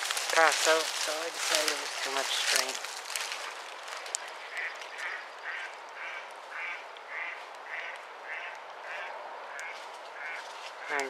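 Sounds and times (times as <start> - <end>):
duck quacking: 4.4 - 11.0.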